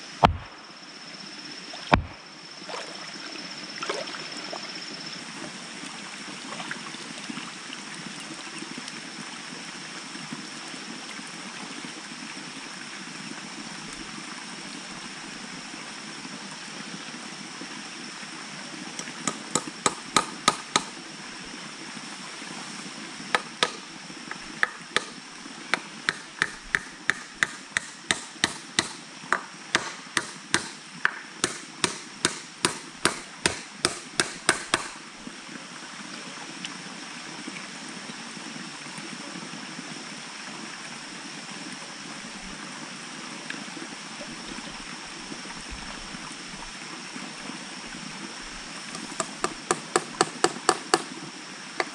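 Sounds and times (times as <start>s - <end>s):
steady hiss: 0.0s - 3.8s, 7.3s - 36.4s, 37.4s - 51.9s
stake hammered into mud: 0.2s - 0.6s, 1.9s - 2.2s, 19.2s - 21.0s, 23.4s - 35.0s, 49.0s - 51.1s.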